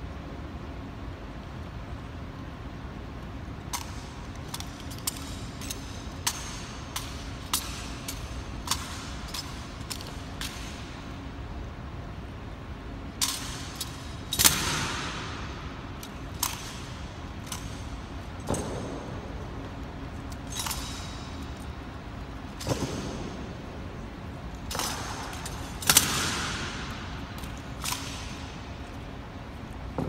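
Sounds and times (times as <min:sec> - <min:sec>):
rifles slapped and caught clacking: 0:03.7 - 0:11.2, 0:13.2 - 0:23.6, 0:24.3 - 0:30.0
loud echoing impact: 0:13.4 - 0:29.0, 0:29.8 - 0:30.0.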